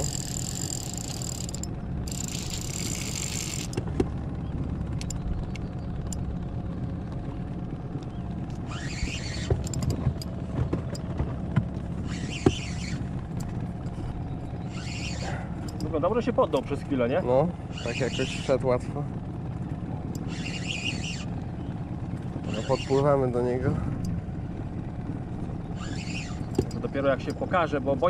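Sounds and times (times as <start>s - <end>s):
fishing reel whirring: 0.0s - 3.8s, 8.5s - 10.2s, 12.0s - 13.5s, 14.6s - 15.9s, 17.6s - 18.7s, 20.0s - 21.4s, 22.4s - 23.2s, 25.6s - 27.6s
low steady rumble: 0.0s - 28.0s.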